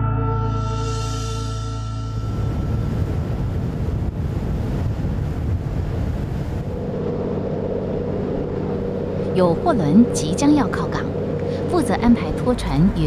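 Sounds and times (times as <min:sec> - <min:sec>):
music: 0:00.0 - 0:03.4
boat engine rumble: 0:00.0 - 0:13.0
wind buffeting microphone: 0:02.3 - 0:13.0.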